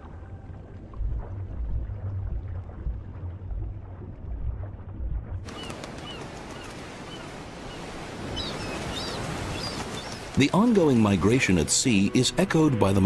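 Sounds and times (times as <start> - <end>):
muffled underwater rumble: 0.0 - 5.5.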